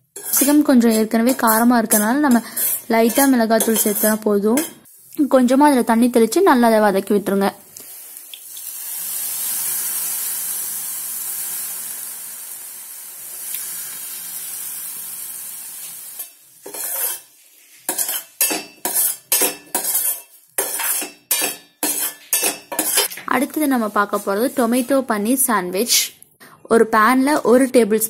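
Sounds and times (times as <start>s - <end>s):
spoon scraping a steel pan: 0.1s - 4.9s, 16.2s - 23.2s
vegetables sizzling in a hot pan: 7.2s - 25.1s.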